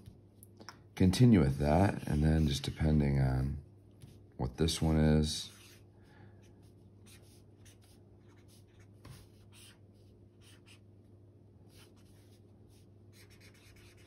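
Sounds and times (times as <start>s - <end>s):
marker scratching on paper: 1.7s - 3.0s, 5.5s - 5.8s, 7.0s - 10.8s, 11.7s - 14.0s.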